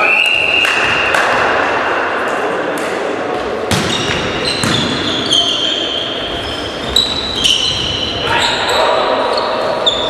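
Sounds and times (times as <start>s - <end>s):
sneakers squeaking on floor: 3.4s - 10.0s
volleyball smacks echoing: 3.6s - 5.0s.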